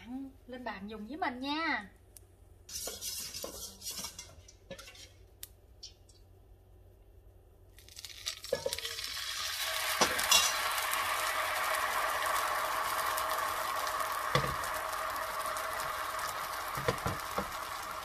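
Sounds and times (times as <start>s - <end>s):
utensils clinking on frying pan: 2.7s - 5.2s, 8.3s - 9.2s, 10.0s - 10.7s
batter sizzling in a pan: 2.7s - 5.3s, 7.7s - 18.0s.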